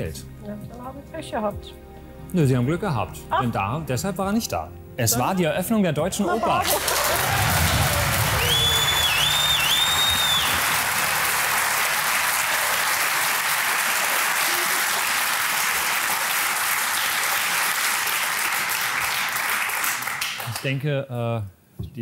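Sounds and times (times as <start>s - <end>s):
audience applauding: 6.4s - 20.8s.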